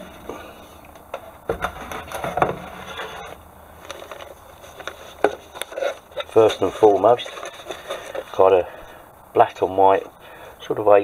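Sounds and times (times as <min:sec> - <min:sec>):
rustling of paper and plastic: 0:01.1 - 0:08.9.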